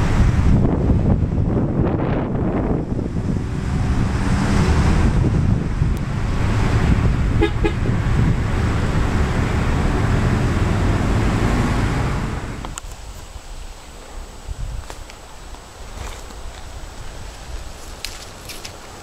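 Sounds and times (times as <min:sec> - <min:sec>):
wind buffeting microphone: 0:00.0 - 0:19.0
car horn toots: 0:07.3 - 0:07.9.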